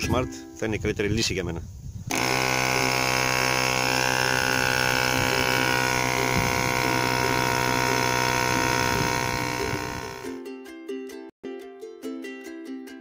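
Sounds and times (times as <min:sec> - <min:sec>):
air compressor humming: 0:02.1 - 0:10.4.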